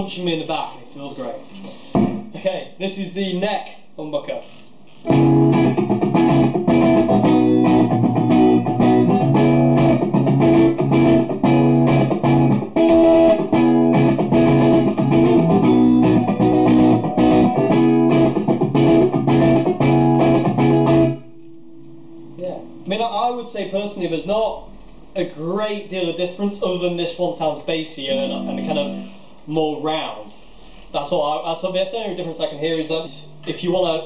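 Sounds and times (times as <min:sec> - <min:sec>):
amplifier hum: 0:05.0 - 0:23.8, 0:28.0 - 0:29.5
electric guitar through amplifier: 0:05.1 - 0:22.9, 0:28.1 - 0:29.4.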